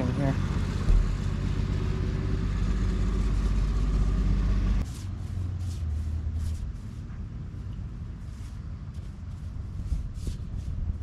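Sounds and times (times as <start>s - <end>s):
low engine-like hum: 0.0s - 11.0s.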